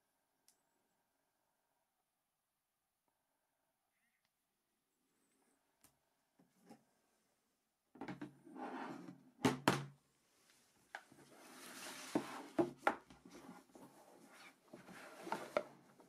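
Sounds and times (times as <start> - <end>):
boxes sliding and rubbing: 11.1 - 16.0.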